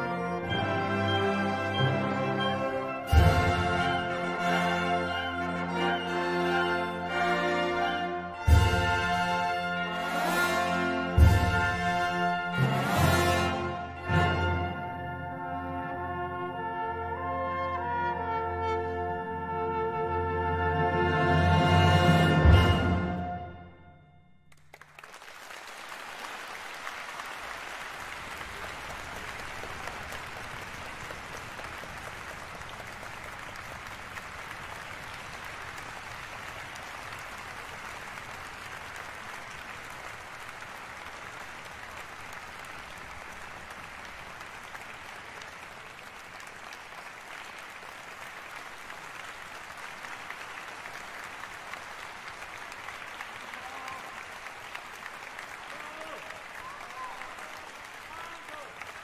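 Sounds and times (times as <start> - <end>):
audience applauding: 24.5 - 59.0.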